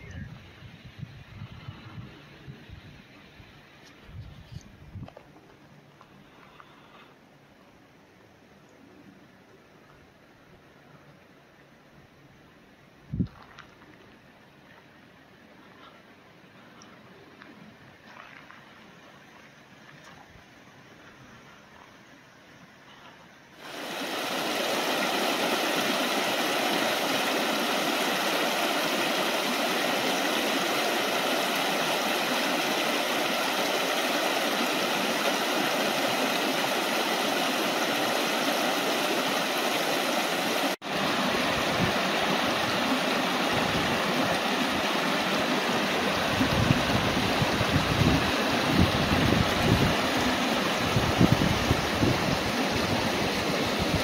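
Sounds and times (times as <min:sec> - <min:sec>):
wind buffeting microphone: 0:00.0 - 0:03.1, 0:41.0 - 0:54.0
brook splashing over stones: 0:23.6 - 0:54.0.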